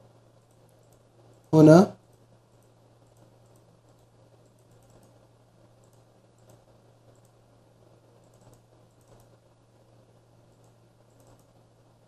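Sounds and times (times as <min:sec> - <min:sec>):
low steady hum: 0:00.0 - 0:12.0
computer mouse clicks: 0:00.4 - 0:07.4, 0:08.2 - 0:09.4, 0:10.5 - 0:11.6.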